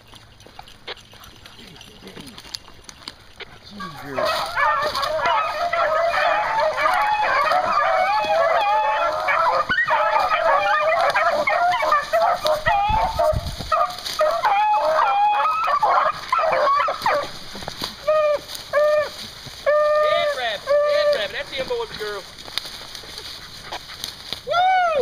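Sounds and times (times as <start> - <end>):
pack of hounds baying: 0.0 - 25.0.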